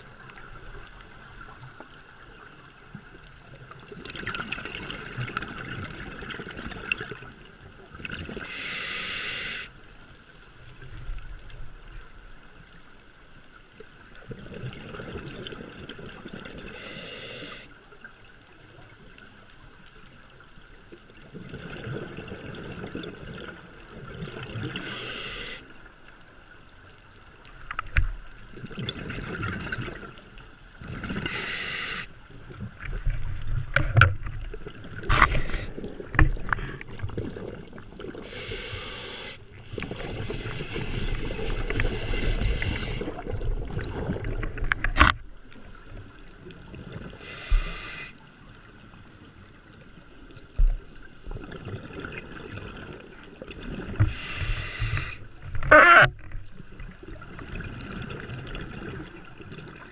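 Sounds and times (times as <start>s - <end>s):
regulator hissing inhales: 8.5s - 9.7s, 16.7s - 17.7s, 24.8s - 25.6s, 31.3s - 32.1s, 38.2s - 43.2s, 47.2s - 48.2s, 54.0s - 55.2s
exhaled bubbles rumbling: 32.5s - 38.4s, 39.5s - 47.2s.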